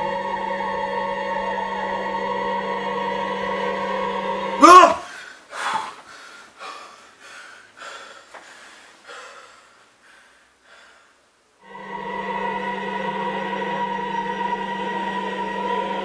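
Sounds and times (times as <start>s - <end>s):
music with held chord: 0.0s - 4.6s, 11.6s - 16.0s
man breathing heavily: 4.6s - 11.4s.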